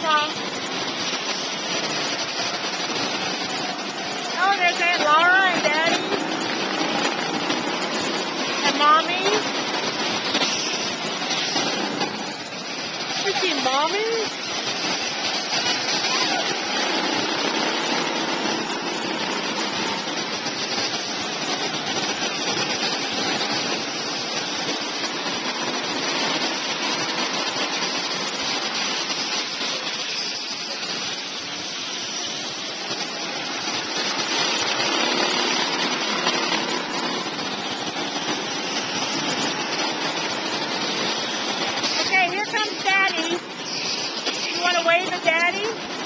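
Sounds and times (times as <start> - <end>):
go-kart engines droning: 0.0 - 46.0.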